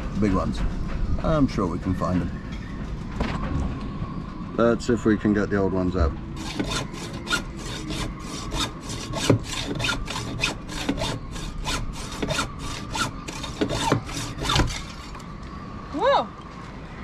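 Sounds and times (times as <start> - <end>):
hand saw cutting: 6.4 - 15.2.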